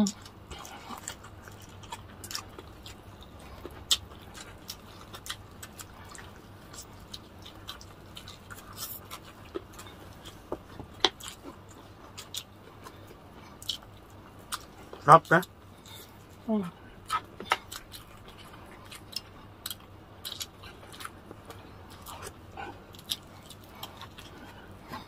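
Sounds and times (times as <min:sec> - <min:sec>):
faint low hum: 0:00.0 - 0:25.0
people chewing: 0:00.0 - 0:25.0.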